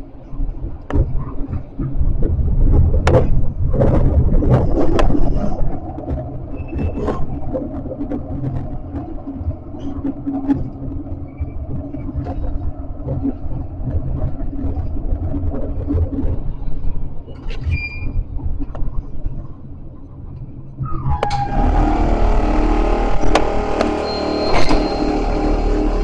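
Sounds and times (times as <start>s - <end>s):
tram rumbling along track: 0.0s - 26.0s
wheels clicking on rails: 0.0s - 26.0s
high squeaks: 20.8s - 26.0s.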